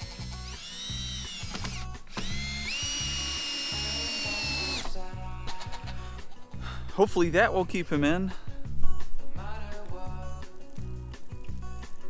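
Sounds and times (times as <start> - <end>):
power drill on metal: 0.0 - 5.0.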